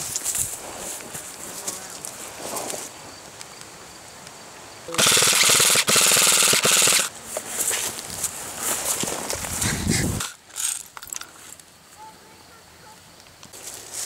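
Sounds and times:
rustling of brush and branches: 0:00.0 - 0:04.7, 0:07.0 - 0:14.0
rapid airsoft rifle fire: 0:05.0 - 0:07.1.

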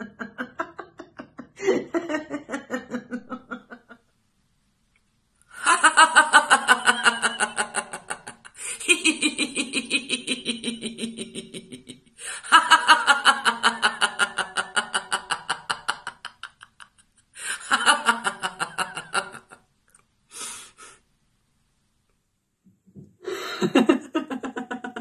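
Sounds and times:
woman laughing heartily: 0:00.0 - 0:04.1, 0:05.6 - 0:19.6, 0:23.2 - 0:25.0
woman breathing: 0:12.2 - 0:12.5, 0:17.4 - 0:17.7, 0:23.2 - 0:23.8.

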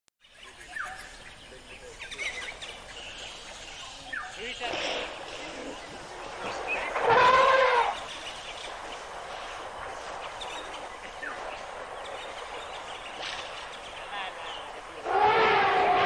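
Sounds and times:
steady background hiss: 0:00.2 - 0:16.0
elephant trumpeting: 0:06.9 - 0:08.1, 0:15.0 - 0:16.0.

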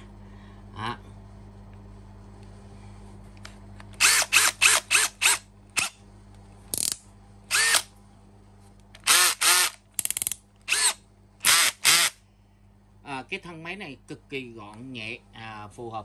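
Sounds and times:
cordless drill whirring: 0:04.0 - 0:05.9, 0:07.5 - 0:07.9, 0:09.0 - 0:12.2.

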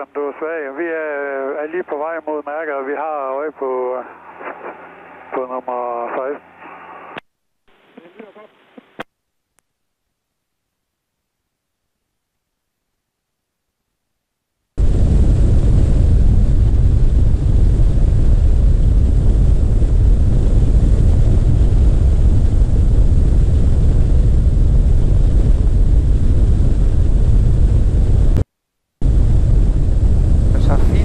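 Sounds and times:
aircraft engine and propeller drone: 0:14.8 - 0:28.4, 0:29.0 - 0:31.0
airflow buffeting microphone: 0:14.8 - 0:28.4, 0:29.0 - 0:31.0.

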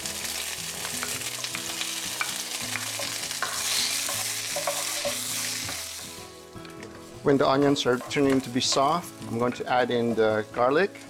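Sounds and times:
onions sizzling in oil: 0:00.0 - 0:11.0
spoon stirring in a pan: 0:02.2 - 0:05.9.

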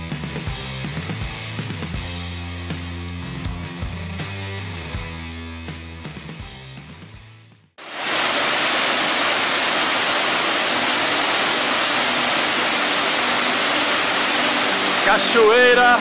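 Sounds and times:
waterfall rushing into pool: 0:07.8 - 0:16.0
guitar music: 0:12.0 - 0:16.0.

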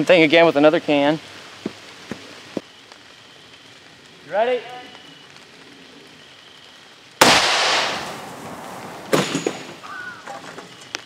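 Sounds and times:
shotgun blast: 0:07.2 - 0:09.7.

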